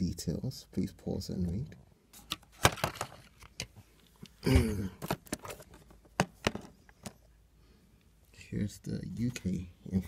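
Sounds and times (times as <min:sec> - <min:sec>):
plastic case clicking: 0:05.0 - 0:07.2.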